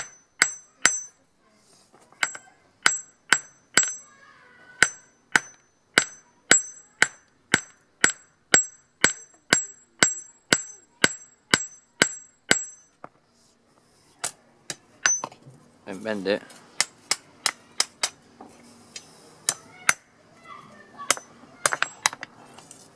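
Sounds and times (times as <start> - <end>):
hammer clanging on anvil: 0.0 - 1.2, 2.2 - 4.2, 4.8 - 12.9, 14.2 - 15.4, 19.5 - 20.2, 21.1 - 22.2.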